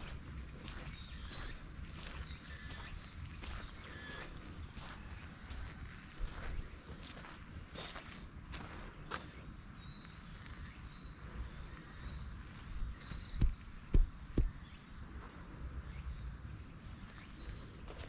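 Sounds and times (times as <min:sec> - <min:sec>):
insects chirring: 0:00.0 - 0:18.0
sharp knocks: 0:13.4 - 0:14.6.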